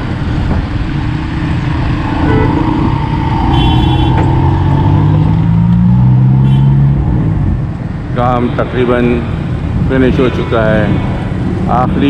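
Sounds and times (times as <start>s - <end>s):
road noise: 0.0s - 12.0s
vehicle engines running: 0.0s - 12.0s
engine accelerating: 1.0s - 7.6s
high-pitched tone: 2.0s - 5.7s.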